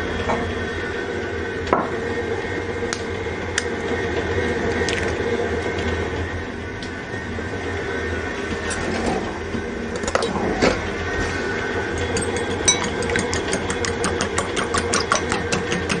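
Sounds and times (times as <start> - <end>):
stand mixer motor hum: 10.9 - 16.0.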